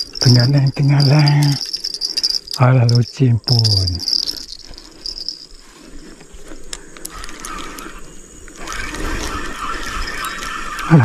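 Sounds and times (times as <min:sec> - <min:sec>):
insects chirring: 0:00.0 - 0:11.0
faint clicks: 0:06.2 - 0:10.9.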